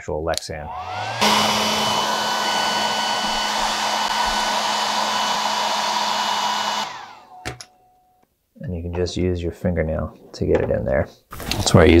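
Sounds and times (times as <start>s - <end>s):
hair dryer running: 0.7s - 7.6s.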